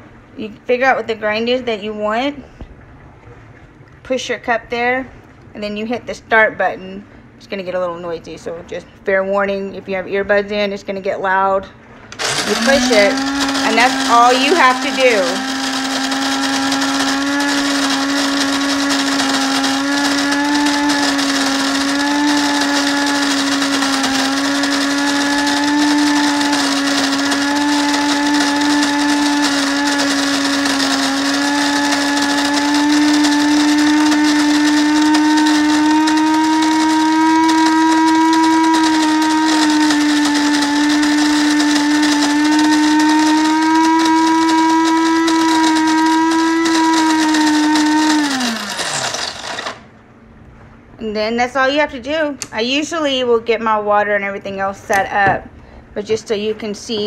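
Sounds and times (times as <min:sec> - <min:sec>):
beans being ground: 0:12.1 - 0:49.9
coffee grinder motor whine: 0:12.1 - 0:49.9.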